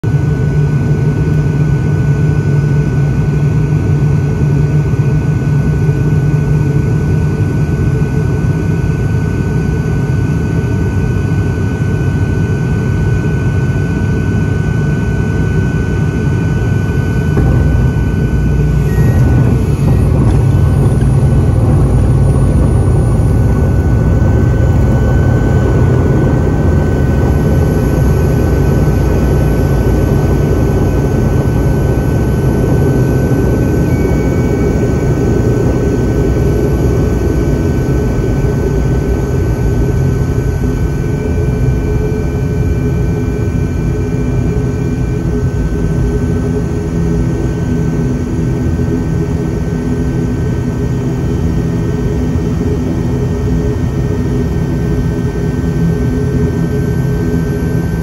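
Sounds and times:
deep rumble of wheels on runway: 0.0s - 58.0s
turboprop engine drone: 0.0s - 58.0s
high steady tone: 16.0s - 45.3s.

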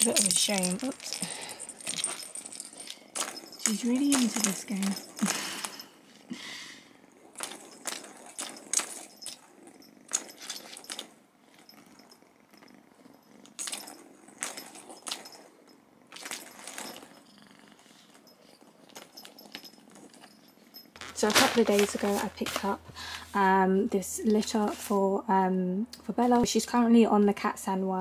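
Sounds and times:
plastic balls rattling in a toy track: 0.0s - 5.8s.

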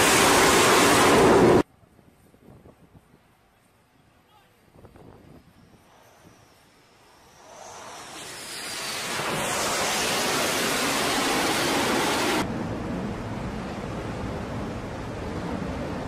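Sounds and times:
jet engine roar: 0.0s - 1.6s, 5.7s - 16.0s
wind and sea rush: 0.0s - 1.7s, 7.3s - 16.0s.

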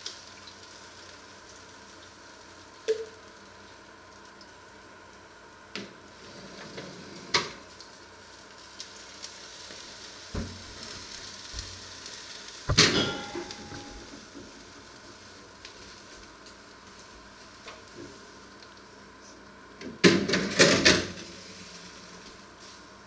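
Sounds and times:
water sizzling on hot metal: 0.0s - 23.0s
knocks: 12.7s - 14.0s
loud metallic clank: 12.7s - 14.1s.

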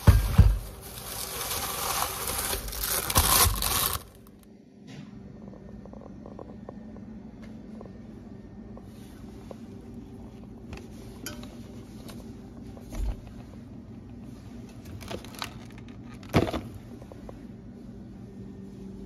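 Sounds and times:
steady low hum: 0.0s - 19.0s
plastic packaging clicks and knocks: 1.9s - 4.3s, 14.9s - 16.7s.

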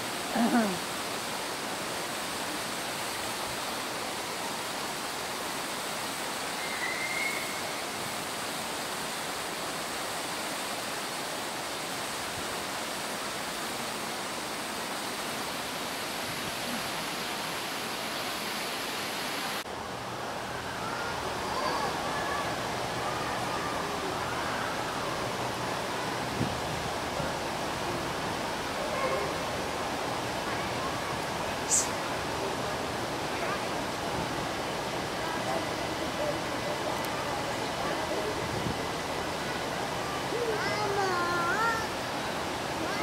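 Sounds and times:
waterfall rushing: 0.0s - 43.0s.

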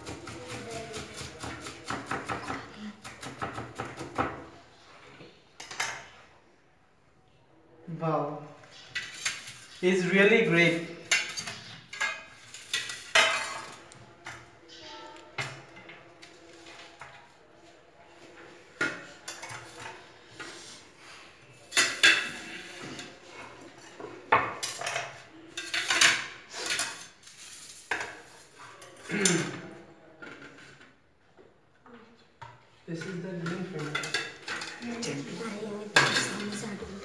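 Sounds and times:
plates and knife clattering: 11.0s - 13.8s, 21.7s - 23.2s, 33.0s - 37.0s.

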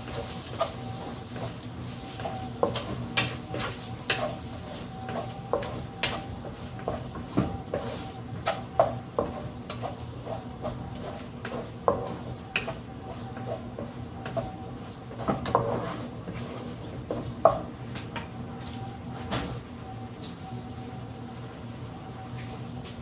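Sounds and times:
spatula scraping frying pan: 0.0s - 17.7s.

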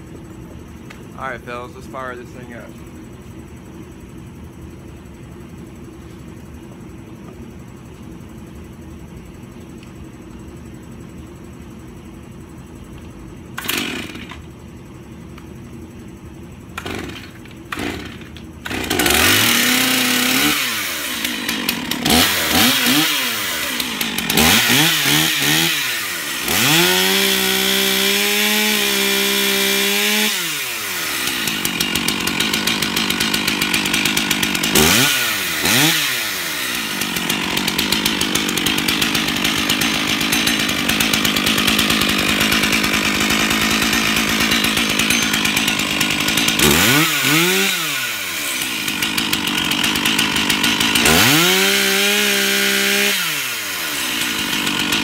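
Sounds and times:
chainsaw engine revving: 13.6s - 14.4s, 16.8s - 55.0s.

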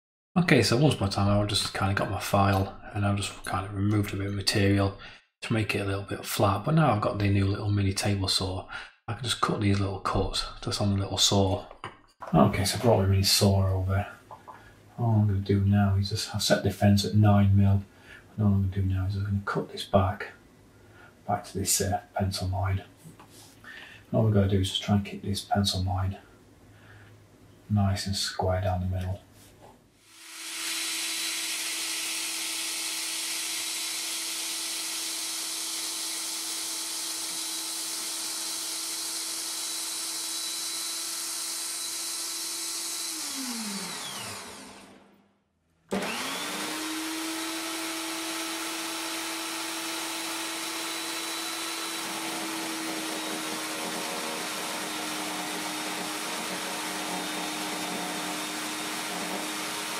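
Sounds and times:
saw blade cutting wooden dowel: 30.1s - 44.9s, 45.9s - 59.9s
small saw motor whining: 30.1s - 45.1s, 45.9s - 59.9s.

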